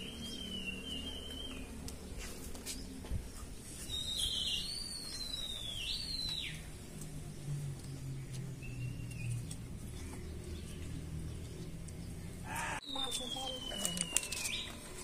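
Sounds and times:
high gliding whistled call: 0.0 - 1.7, 3.8 - 6.7, 12.5 - 14.8.

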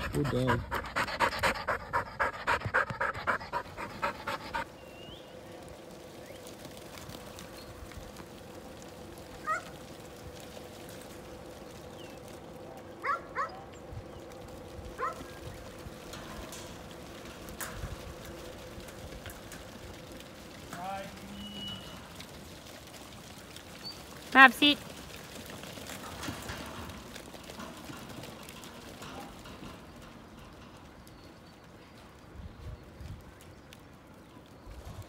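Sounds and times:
dog panting fast: 0.0 - 4.7.

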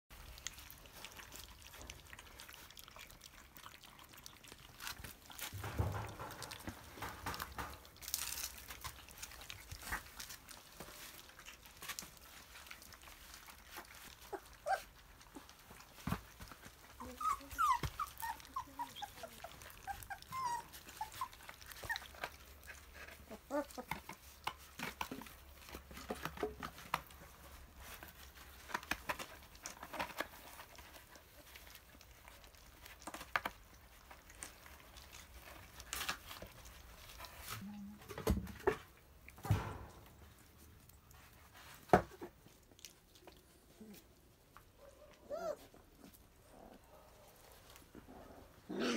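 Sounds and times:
puppies lapping food: 0.1 - 48.7
puppy whimpers: 13.9 - 15.6, 16.7 - 24.1, 44.8 - 46.9.

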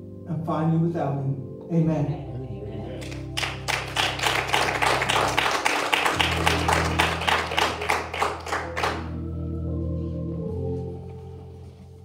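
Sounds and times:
organ chords: 0.0 - 12.0
hand clapping: 3.0 - 9.1.

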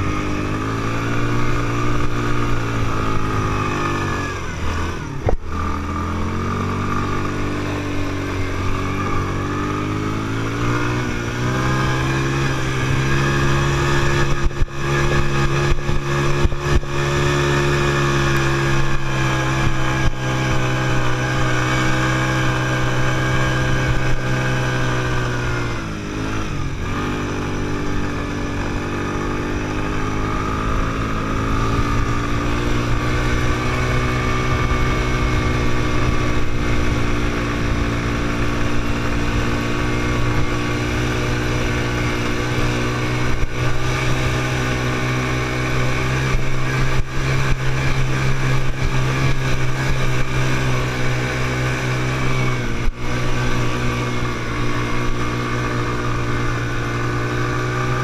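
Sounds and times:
quad bike engine revving: 0.0 - 58.0.

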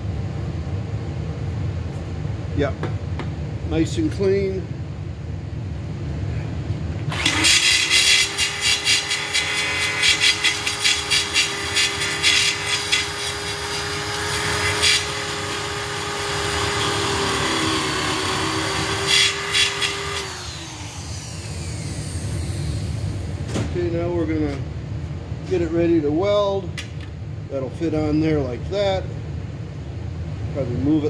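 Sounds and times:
grinder grinding steel: 7.1 - 23.2
angle grinder whining: 7.1 - 23.5.

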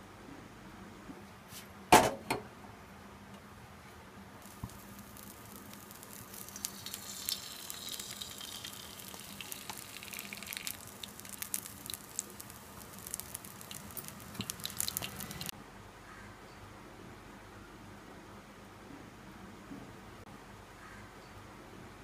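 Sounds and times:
oil sizzling and crackling: 4.4 - 15.5.

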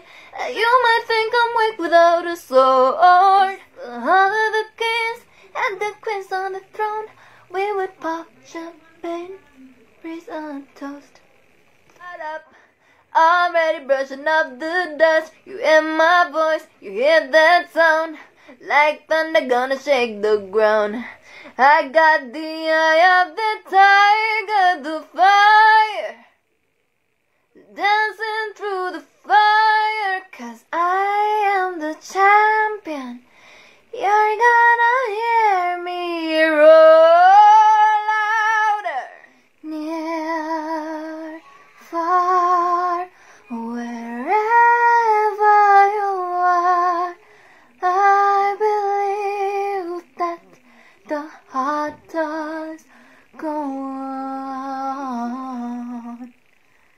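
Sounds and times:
singer breathing: 0.0 - 0.4, 7.1 - 7.5, 21.0 - 21.6, 33.2 - 33.9, 47.2 - 47.8, 50.6 - 51.1, 52.9 - 53.4
woman singing unaccompanied: 0.0 - 11.3, 11.9 - 26.3, 27.6 - 56.5.

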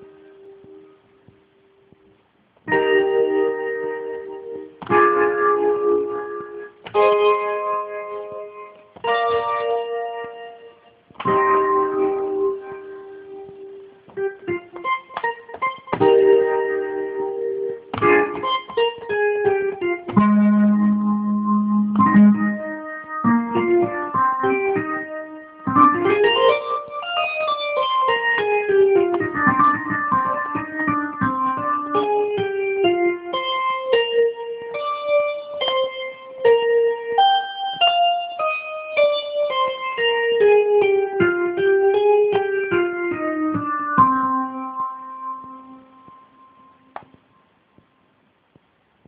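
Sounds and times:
synth chords and melodies: 2.7 - 47.4.

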